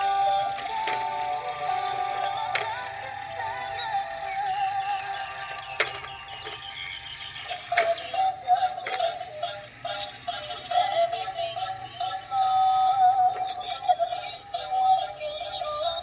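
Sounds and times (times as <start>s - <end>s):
toy electronic tune: 0.0s - 16.0s
sharp clicks: 5.3s - 9.2s.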